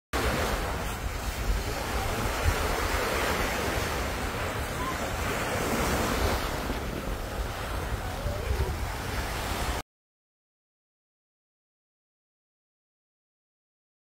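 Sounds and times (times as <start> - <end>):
small waves washing on beach: 0.2 - 9.8
wind buffeting microphone: 0.2 - 9.8.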